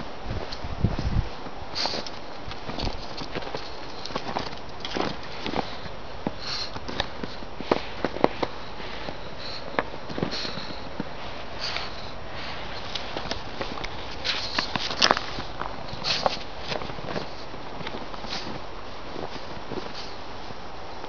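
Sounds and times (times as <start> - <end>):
paws crunching snow: 0.0 - 21.0
dog sniffing: 5.2 - 17.5.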